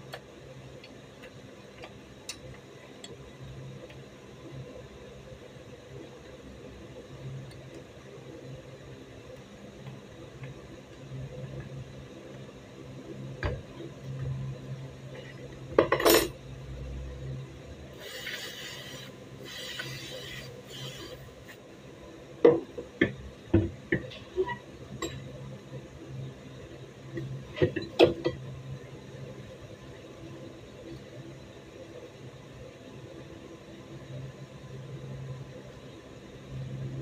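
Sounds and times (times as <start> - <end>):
aerosol spray can hissing: 18.0 - 21.2.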